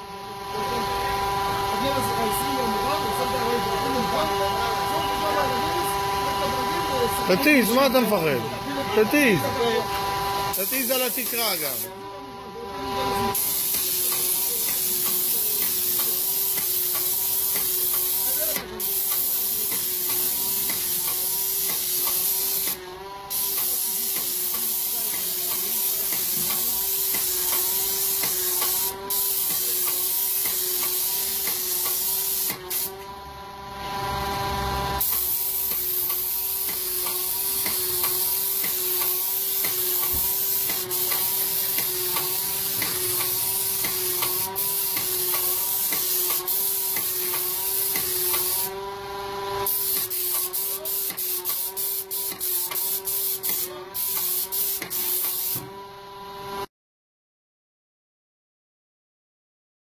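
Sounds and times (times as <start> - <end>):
sprayer machine humming: 0.2 - 55.7
spray gun hissing: 10.5 - 11.9, 13.3 - 32.9, 35.0 - 48.7, 49.6 - 55.6.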